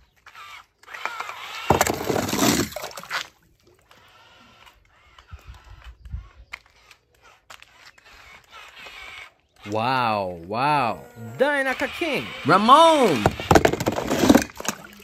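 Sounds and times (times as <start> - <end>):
toy car splashing into water: 0.9 - 3.4, 13.0 - 15.0.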